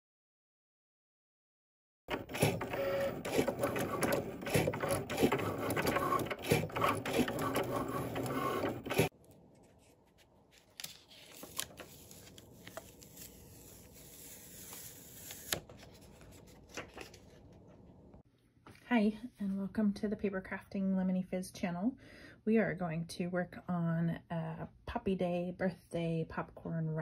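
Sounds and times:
cutting machine motor clicking: 2.1 - 9.1
cardstock peeled from mat: 9.2 - 17.4.

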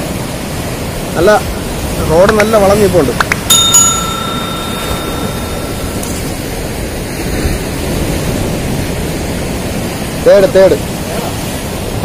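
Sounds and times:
sea surf washing over rocks: 0.0 - 12.0
wind on microphone: 0.0 - 12.0
high ringing tone: 3.5 - 7.4.

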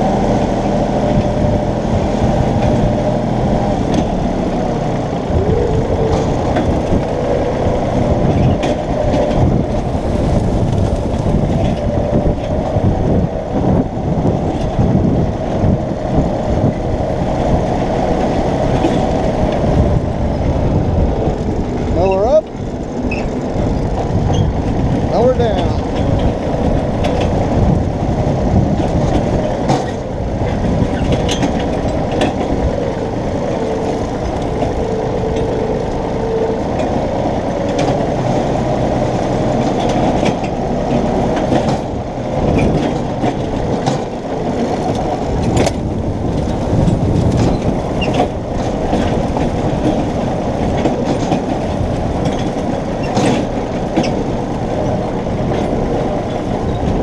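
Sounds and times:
tractor engine running: 0.0 - 57.0
clanks and rattles: 21.2 - 57.0.

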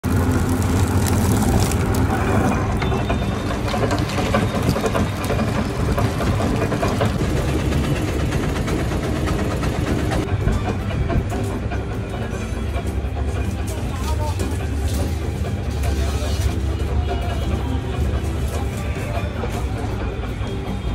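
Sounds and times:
crusher machine humming: 0.0 - 20.9
machine clicks and clatter: 0.0 - 20.9.

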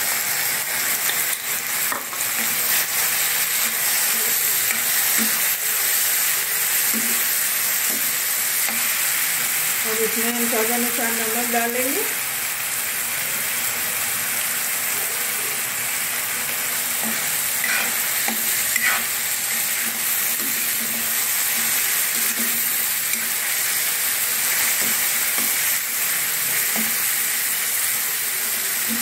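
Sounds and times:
masala sizzling in hot oil: 0.0 - 29.0
metal spatula scraping pan: 17.0 - 23.4.

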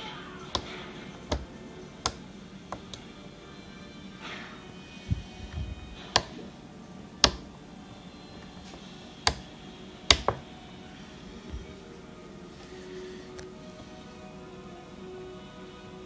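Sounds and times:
toggle switches clicking: 0.5 - 3.1, 6.0 - 6.4, 7.2 - 7.5, 9.2 - 9.5, 10.1 - 10.4.

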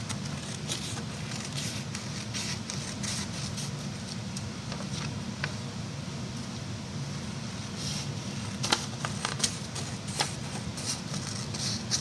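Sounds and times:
scissors cutting paper: 0.0 - 3.7, 8.7 - 12.0.

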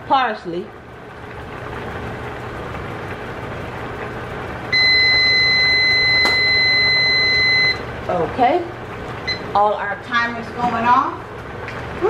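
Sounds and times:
timer long high-pitched beep: 4.8 - 7.8.

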